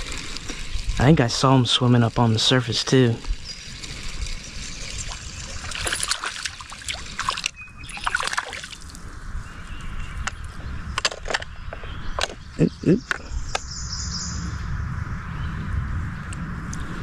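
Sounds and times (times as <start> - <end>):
fish splashing in water: 3.9 - 9.0.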